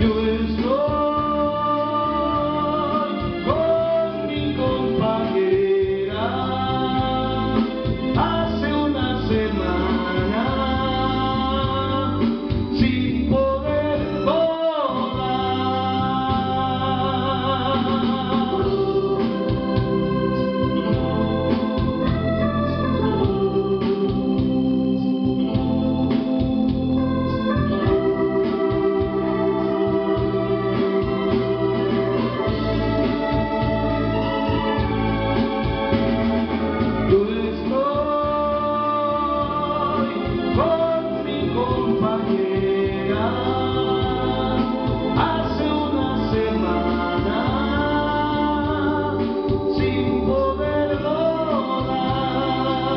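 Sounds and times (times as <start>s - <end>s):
man singing into a microphone: 0.0s - 24.4s, 37.0s - 52.9s
organ backing music: 0.0s - 52.9s.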